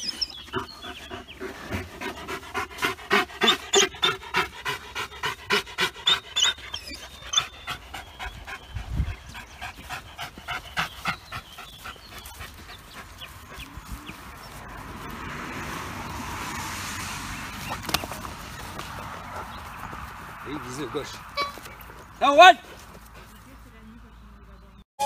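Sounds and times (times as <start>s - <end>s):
dog panting fast: 0.0s - 14.5s, 21.9s - 23.7s.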